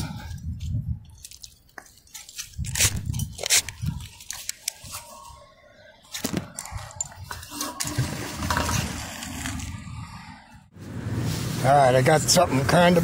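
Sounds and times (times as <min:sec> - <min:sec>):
carabiner clicking and clanking: 0:00.6 - 0:05.0, 0:06.1 - 0:07.5.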